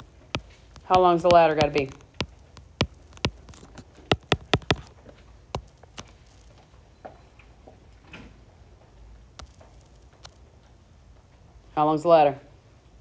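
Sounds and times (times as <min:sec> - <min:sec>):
calculator keys clicking: 0:00.0 - 0:05.0, 0:05.6 - 0:06.5, 0:09.4 - 0:10.4.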